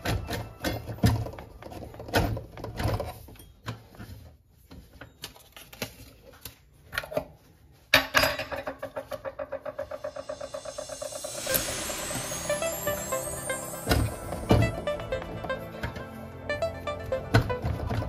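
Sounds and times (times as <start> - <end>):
music with fast pulsing beat: 10.1 - 18.0.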